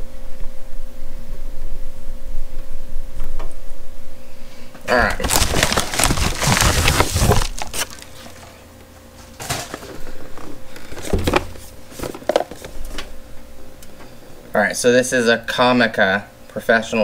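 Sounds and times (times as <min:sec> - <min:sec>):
paper envelope rustling: 0:05.0 - 0:08.6, 0:09.2 - 0:13.0
cardboard box handling: 0:05.2 - 0:08.6.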